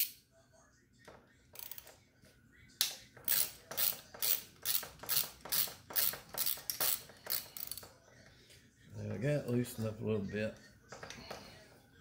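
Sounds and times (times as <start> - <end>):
ratchet wrench clicking: 1.6 - 2.0, 2.9 - 7.9.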